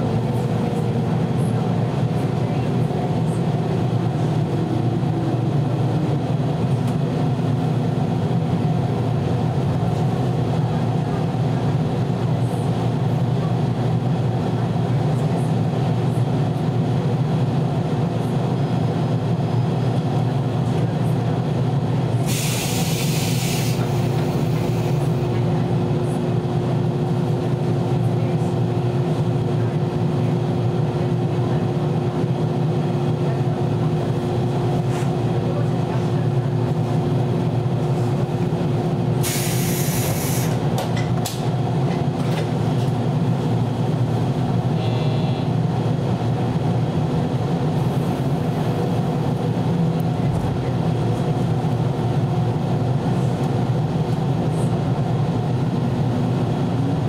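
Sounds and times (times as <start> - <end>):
train low rumble and hum: 0.0 - 57.0
air hiss: 22.3 - 23.9, 39.2 - 40.6.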